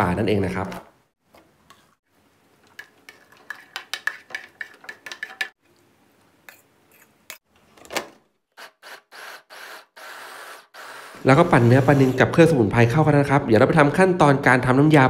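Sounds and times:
fork scraping metal bowl: 0:02.8 - 0:05.6.

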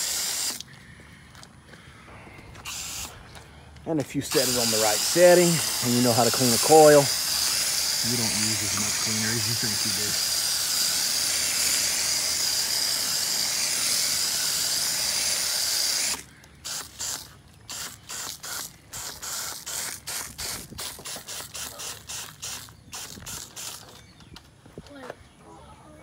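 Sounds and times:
foam gun spraying hiss: 0:00.0 - 0:00.6, 0:02.6 - 0:03.3, 0:04.0 - 0:23.8
short sharp spray bursts: 0:00.0 - 0:00.6, 0:02.6 - 0:03.3, 0:04.0 - 0:23.9.

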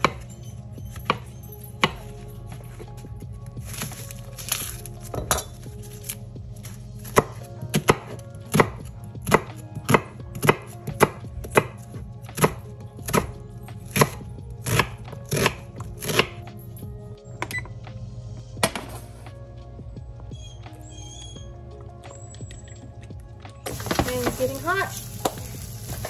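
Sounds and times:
knife chopping on wooden board: 0:07.1 - 0:11.8, 0:12.4 - 0:13.3.

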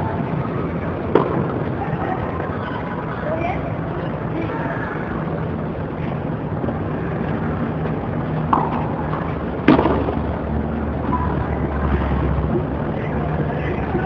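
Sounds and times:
low background hum: 0:00.0 - 0:14.0
tennis racket hitting ball: 0:08.5 - 0:10.2.

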